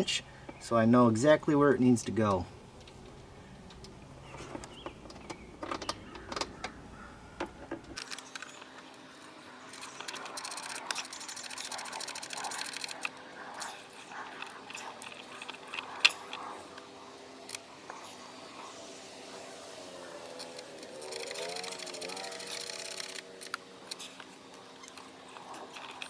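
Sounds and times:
rapid even clicking: 0:09.7 - 0:18.7, 0:20.1 - 0:26.0.

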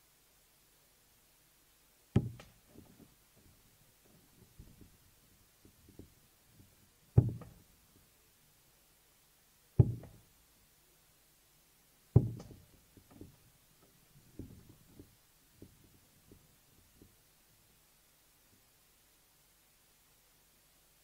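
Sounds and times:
darts thudding into dartboard: 0:02.2 - 0:02.5, 0:07.2 - 0:07.6, 0:12.2 - 0:12.6
faint knocks: 0:02.2 - 0:05.0, 0:05.6 - 0:07.6, 0:09.8 - 0:10.2, 0:12.2 - 0:17.2.

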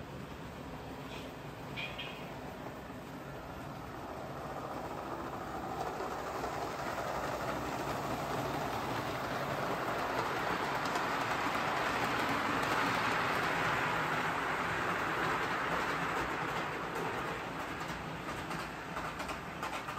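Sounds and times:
model train wheels rattling: 0:04.4 - 0:19.9.

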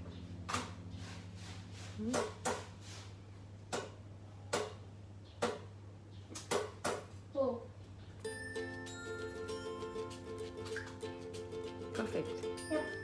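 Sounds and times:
steady low hum: 0:00.0 - 0:05.2.

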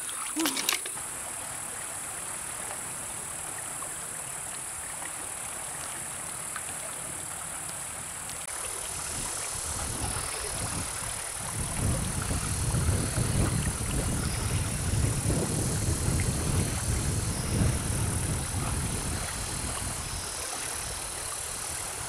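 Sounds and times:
high insect drone: 0:05.6 - 0:22.0.

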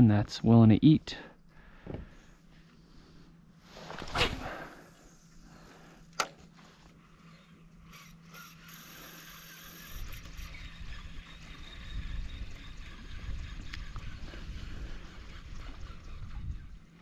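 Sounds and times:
fishing rod swish: 0:03.8 - 0:04.6
fishing reel ticking and whirring: 0:07.2 - 0:17.0.

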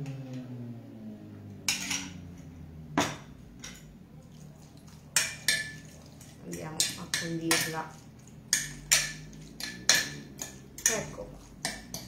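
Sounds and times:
faint low hum: 0:00.0 - 0:12.0
metal spoon clinking on dishes: 0:05.1 - 0:05.9, 0:08.5 - 0:12.0.

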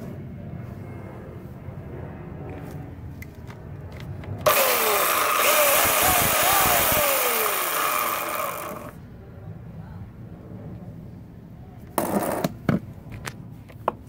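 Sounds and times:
electric chainsaw running: 0:04.4 - 0:09.0.

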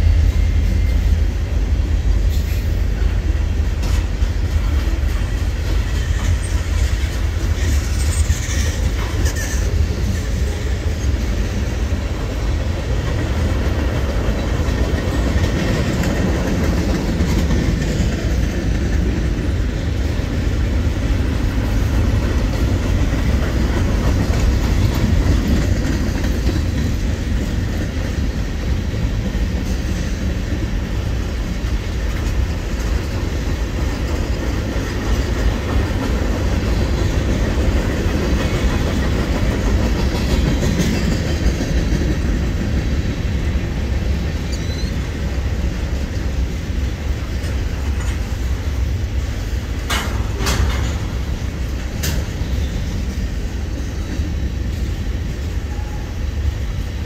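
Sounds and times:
train wheels rumbling on rails: 0:00.0 - 0:57.0
freight car clanks: 0:49.8 - 0:52.4.

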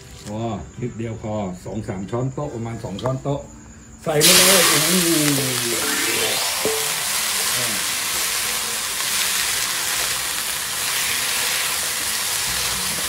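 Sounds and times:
water splashing into hot pan: 0:04.2 - 0:09.4
bean sprouts sizzling in a wok: 0:04.2 - 0:13.0.

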